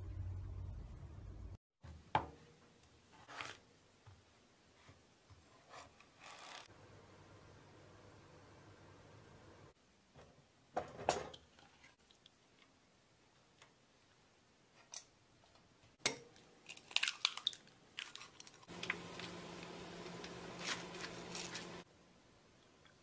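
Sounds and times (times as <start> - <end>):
low hum: 0.0 - 1.6
food deep-frying in oil: 17.2 - 21.8.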